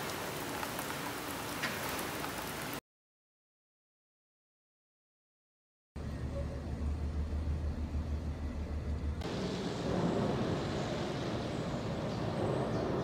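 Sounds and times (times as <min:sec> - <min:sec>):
rain noise: 0:00.0 - 0:02.8, 0:09.2 - 0:13.0
street traffic hiss: 0:00.0 - 0:02.8, 0:06.9 - 0:13.0
low city rumble: 0:06.0 - 0:13.0.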